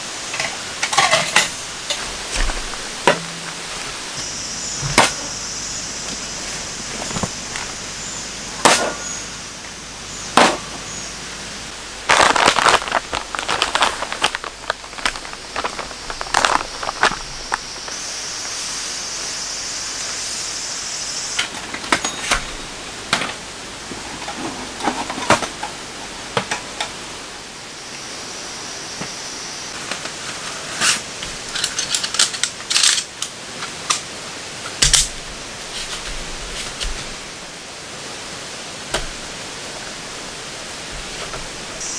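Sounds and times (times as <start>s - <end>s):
steady hiss: 0.0s - 41.9s
fabric bag rustling: 11.9s - 18.0s.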